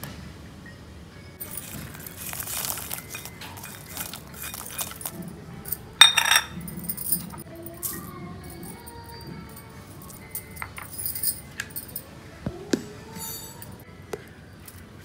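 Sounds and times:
garlic cloves clattering into steel jar: 1.4s - 7.4s
ringing metal clink: 1.4s - 12.0s, 13.2s - 13.8s.

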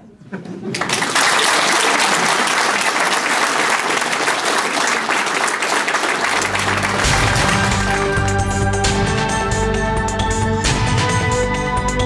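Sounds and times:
audience applauding: 0.7s - 9.2s
low music tones: 6.3s - 12.0s.

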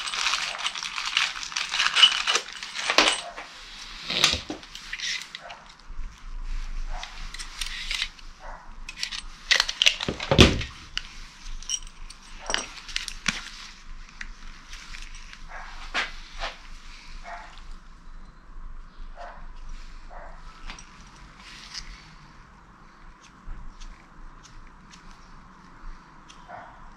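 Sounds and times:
tools and bolts clinking: 0.0s - 5.8s, 7.1s - 8.2s, 8.9s - 13.5s, 20.6s - 21.9s.

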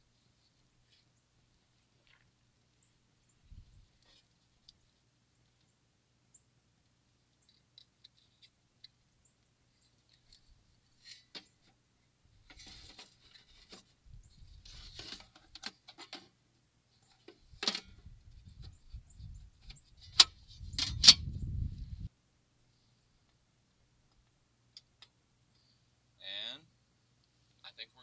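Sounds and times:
wires rustling and clicking: 7.3s - 11.8s.

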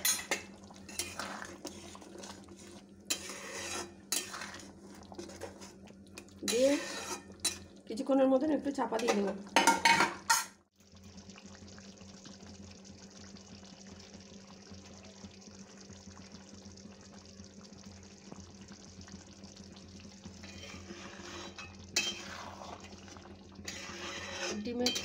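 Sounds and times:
spatula scraping a pan: 0.0s - 5.8s, 6.4s - 7.7s, 20.4s - 23.0s, 23.6s - 25.0s
curry bubbling in a pan: 0.0s - 25.0s
low steady hum: 0.0s - 25.0s.

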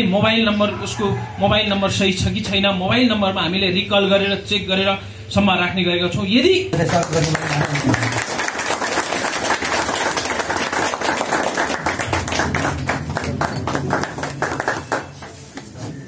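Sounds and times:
people clapping: 6.8s - 16.0s.

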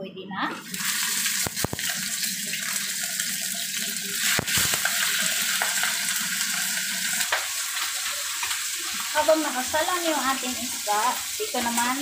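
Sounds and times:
fish sizzling in hot oil: 0.6s - 12.0s.

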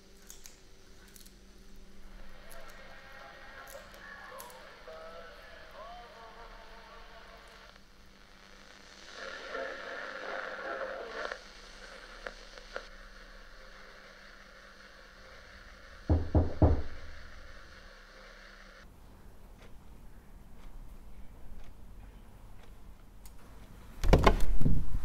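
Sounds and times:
muffled noise: 0.0s - 25.0s
heavy knocks on a door: 16.1s - 17.1s.

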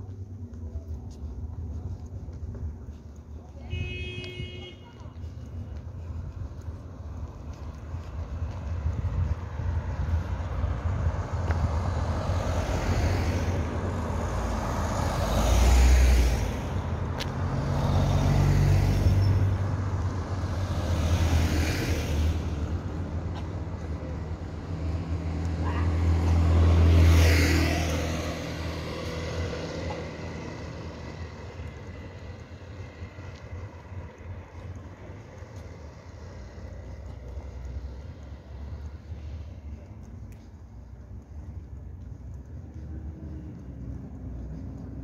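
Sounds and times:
cars driving past: 1.4s - 45.0s.

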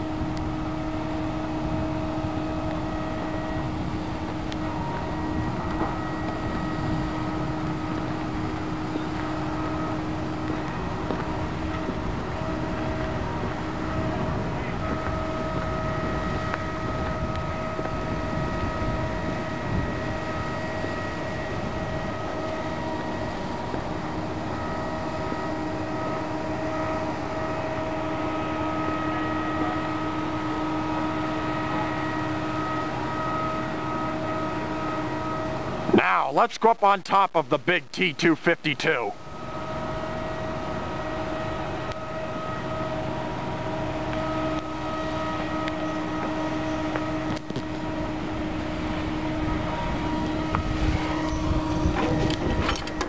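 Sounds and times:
wind rumble on microphone: 0.0s - 25.6s, 39.5s - 53.0s
faint steady whining tones: 0.0s - 53.0s
machinery drone: 0.0s - 53.0s.

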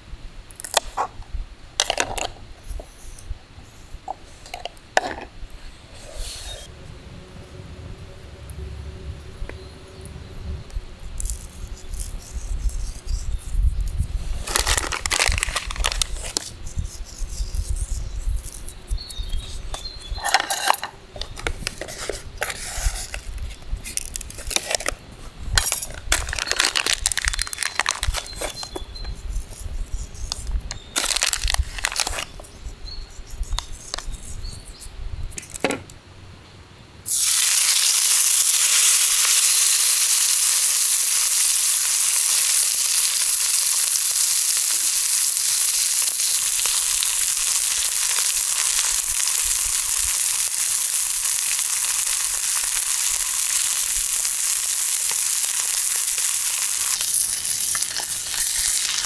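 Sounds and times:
rustling and crinkling: 11.1s - 32.7s
food sizzling in frying pan: 37.1s - 59.0s.

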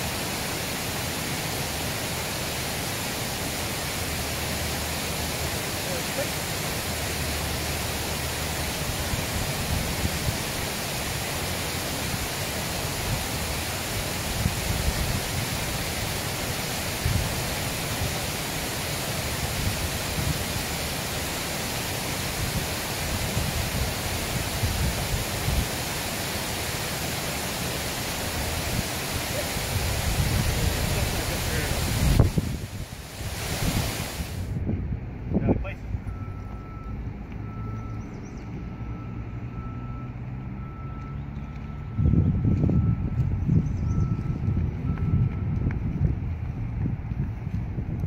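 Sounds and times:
water rushing over a spillway: 0.0s - 34.6s.

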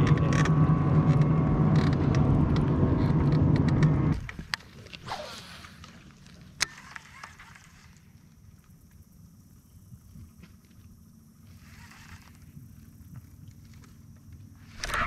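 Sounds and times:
boat motor humming: 0.0s - 8.2s.

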